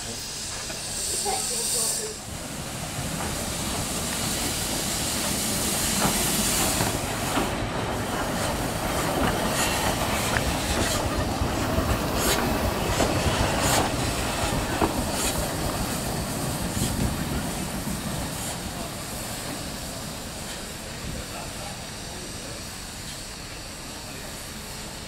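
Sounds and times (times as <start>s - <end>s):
steam hissing: 0.0s - 25.0s
train wheels clicking over rail joints: 0.4s - 25.0s.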